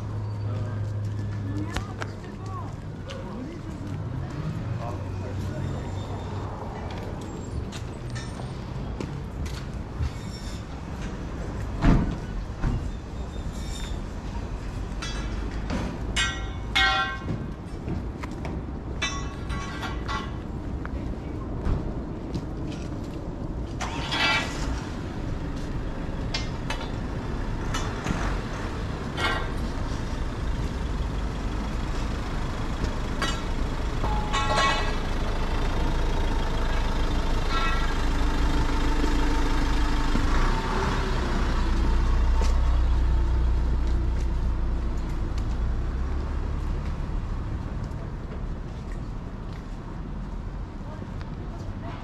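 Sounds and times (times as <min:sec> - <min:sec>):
busy street ambience: 0:00.0 - 0:52.0
large vehicle engine running: 0:14.2 - 0:49.5.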